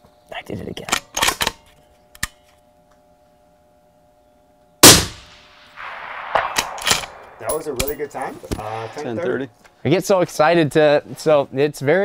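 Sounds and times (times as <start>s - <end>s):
suppressed rifle shot: 4.8s - 7.4s.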